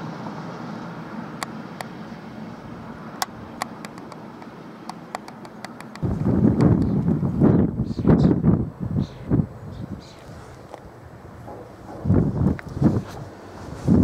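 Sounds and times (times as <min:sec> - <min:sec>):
electric train rumble: 0:00.0 - 0:14.0
tripod head clicking: 0:03.2 - 0:06.8
gusty low noise: 0:06.0 - 0:10.1, 0:11.1 - 0:14.0.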